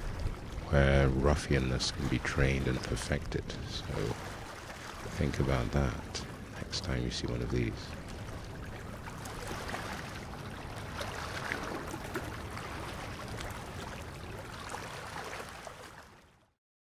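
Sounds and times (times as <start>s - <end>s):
steady low rumble: 0.0s - 11.0s
water lapping: 0.0s - 16.5s.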